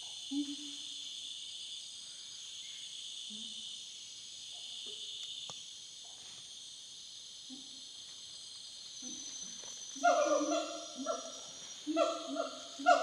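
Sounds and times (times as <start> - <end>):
high-pitched insect chorus: 0.0 - 13.0
distant gibbons hooting: 10.0 - 13.0.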